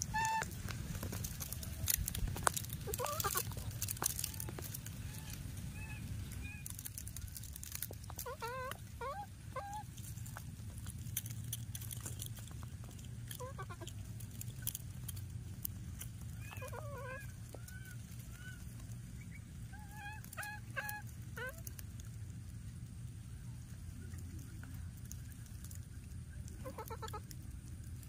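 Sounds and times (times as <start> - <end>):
baby monkey calling: 0.0 - 0.6, 2.8 - 10.4, 12.8 - 14.0, 16.2 - 21.8, 26.5 - 27.3
dry grass rustling: 0.0 - 28.0.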